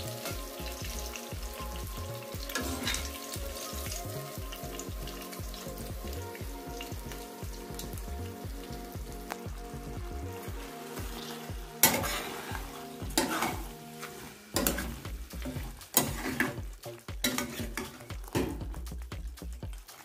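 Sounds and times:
stew sizzling: 0.0s - 20.0s
spoon scraping a metal pot: 2.6s - 3.2s, 11.8s - 15.0s, 17.2s - 18.1s.

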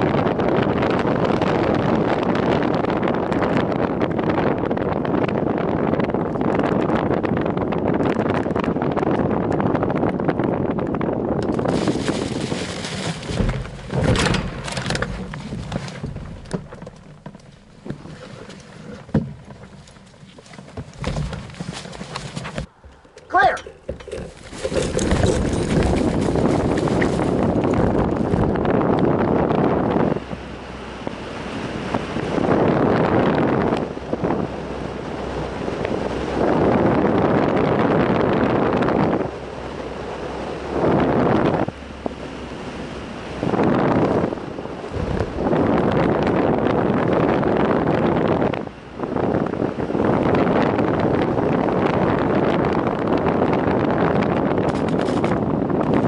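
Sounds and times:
wind rushing over microphone: 0.0s - 56.0s
crop plants rustling: 11.4s - 22.8s, 23.5s - 28.6s.

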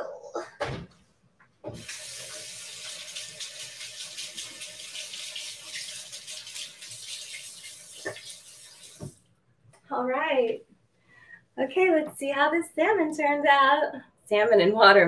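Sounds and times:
tap water splashing into sink: 1.7s - 9.2s.

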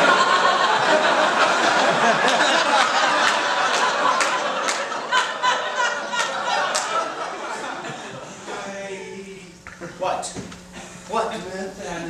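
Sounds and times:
audience laughing: 0.0s - 8.8s
sharp claps: 3.2s - 5.0s, 6.2s - 7.0s.

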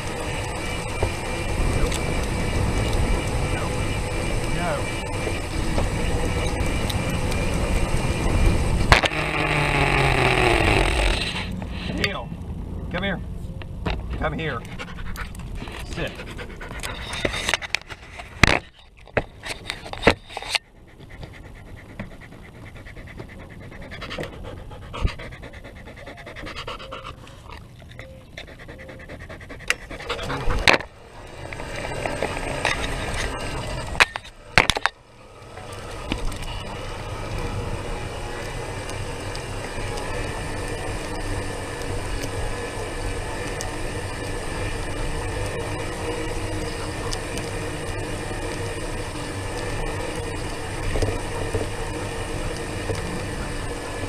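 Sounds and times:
steady rolling rumble: 0.0s - 54.0s
dog panting: 14.5s - 18.4s, 19.7s - 33.6s.

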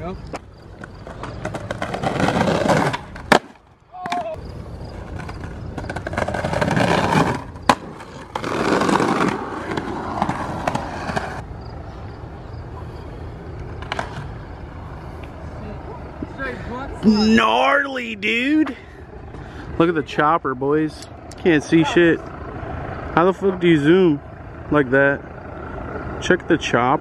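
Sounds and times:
skateboard wheels rolling on concrete: 0.0s - 27.0s
skateboard clacks: 0.3s - 11.4s, 13.5s - 14.3s.

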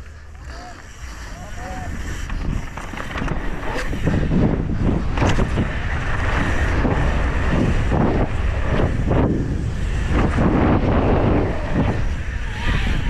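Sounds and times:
bike rattling and knocking: 0.0s - 12.4s
tyres rumbling over dirt: 0.0s - 13.0s
wind rushing over microphone: 0.0s - 13.0s.

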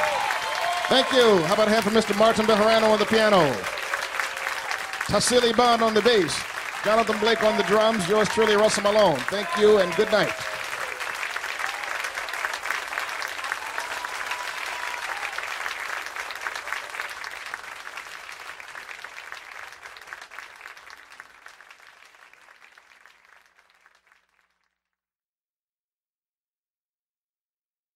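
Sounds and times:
audience applauding: 0.0s - 24.7s.

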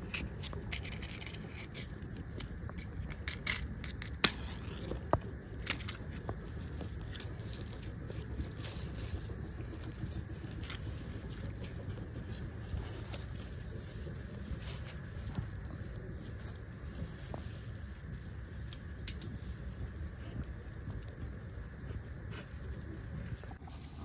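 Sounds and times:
dry leaves and twigs rustling: 0.0s - 24.0s
match striking: 0.1s - 18.0s, 18.6s - 20.1s.

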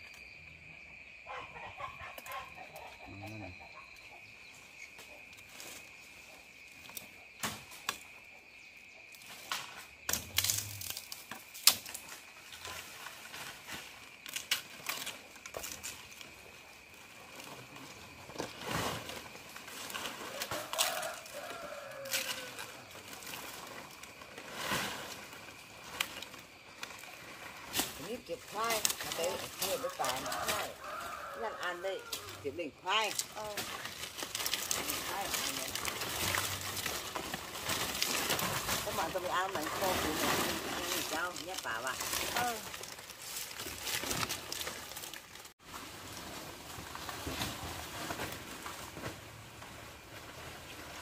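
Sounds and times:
snaps crackles and rustling: 9.2s - 16.5s, 18.4s - 28.0s, 33.1s - 39.0s, 40.6s - 45.6s.

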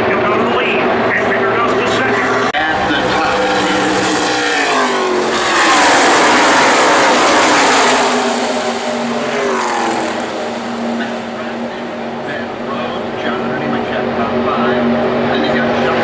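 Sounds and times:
race trucks passing at full speed: 0.0s - 16.0s.

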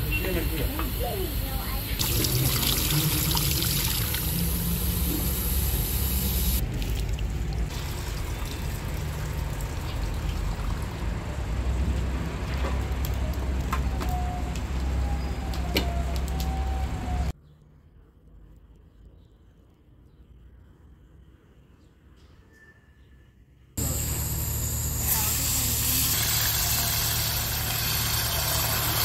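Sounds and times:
steady low hum: 0.4s - 6.7s.

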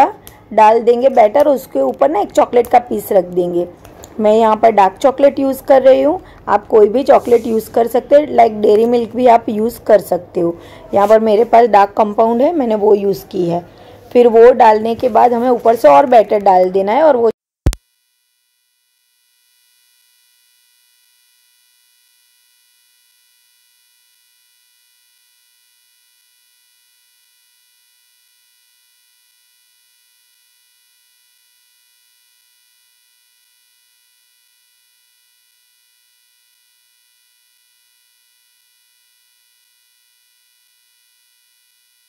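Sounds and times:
faint electronic buzz: 17.7s - 42.0s.

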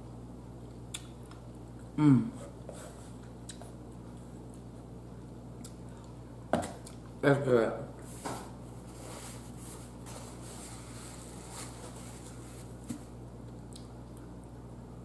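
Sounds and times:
low electrical hum: 0.0s - 15.0s
chewing and wet mouth sounds: 0.7s - 1.9s, 3.2s - 7.1s.

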